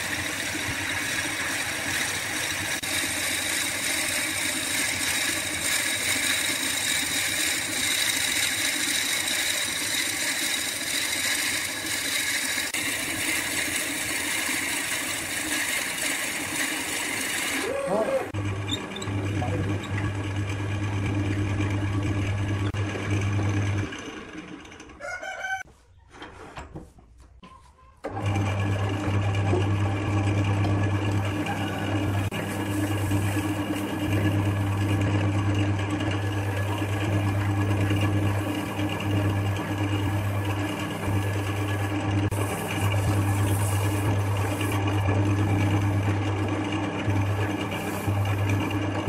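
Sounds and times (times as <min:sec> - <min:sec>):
wood lathe motor hum: 0:00.0 - 0:25.0, 0:28.1 - 0:49.0
rooster crowing: 0:25.0 - 0:25.7, 0:31.4 - 0:32.0.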